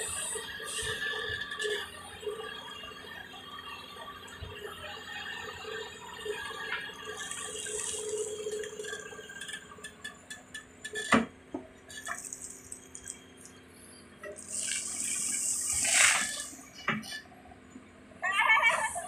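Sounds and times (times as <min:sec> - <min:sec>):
excavator running: 0:00.0 - 0:19.0
soil and gravel pouring: 0:14.4 - 0:16.6.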